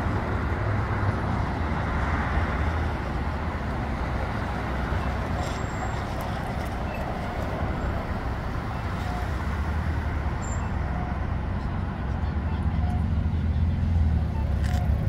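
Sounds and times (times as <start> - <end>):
street traffic noise: 0.0 - 15.0.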